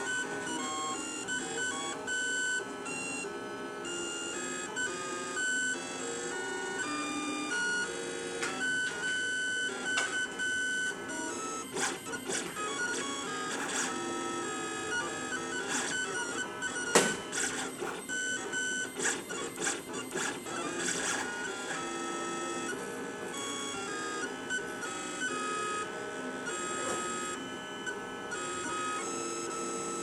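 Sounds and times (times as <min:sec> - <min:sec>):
stepper motors whining: 0:08.6 - 0:22.8.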